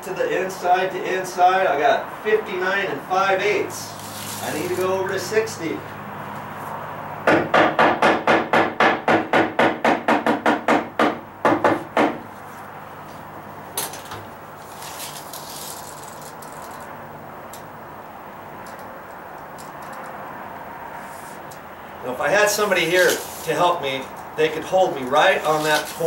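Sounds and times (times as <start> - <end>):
hammer knocking wood: 7.2 - 12.3.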